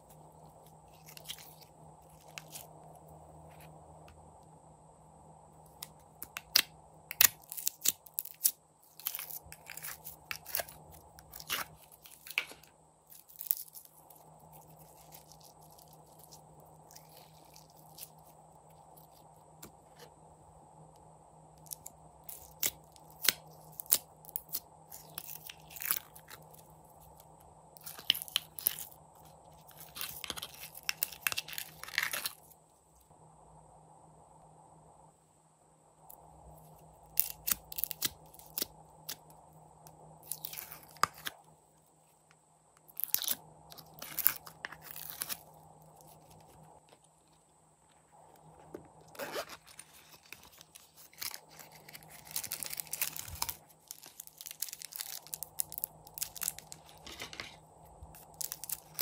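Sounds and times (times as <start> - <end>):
slime crackling and popping: 6.2 - 12.5, 37.2 - 39.2, 49.6 - 57.3, 58.2 - 59.0.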